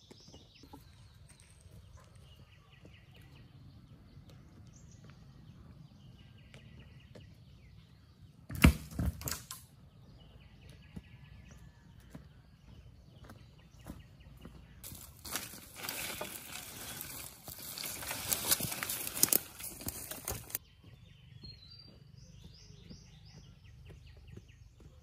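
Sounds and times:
wooden pole thudding on dirt: 8.5 - 9.6.

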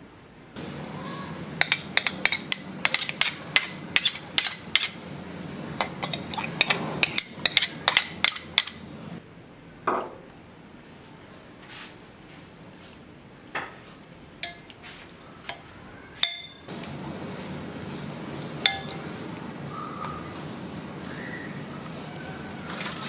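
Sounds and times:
metal spoon clinking glass bowl: 1.6 - 5.0, 5.8 - 8.9, 14.4 - 14.7, 16.2 - 16.7, 18.6 - 19.0.

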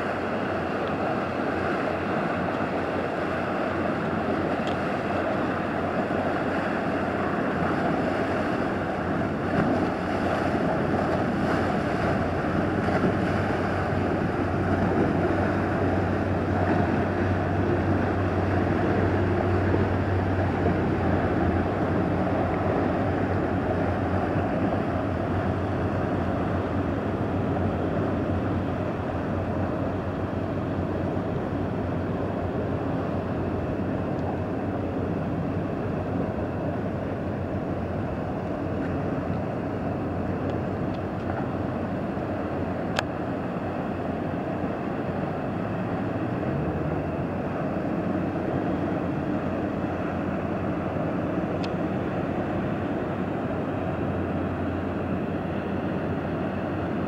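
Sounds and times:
boat engine droning: 0.0 - 57.0
boat wake washing: 0.0 - 57.0.

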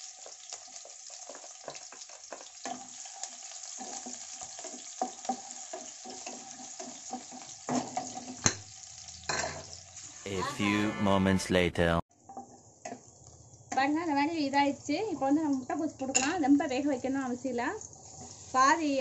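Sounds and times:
vegetables sizzling in oil: 0.0 - 10.3, 12.4 - 19.0
wooden spatula scraping a pan: 1.1 - 8.4, 18.0 - 18.7.

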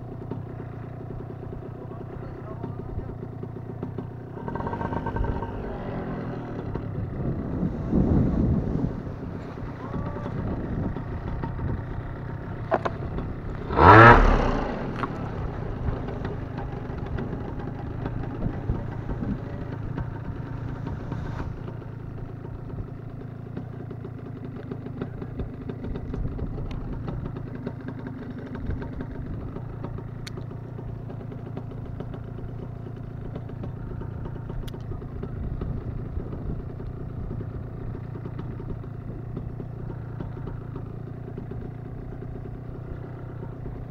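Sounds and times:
paramotor engine idling: 0.0 - 43.9.

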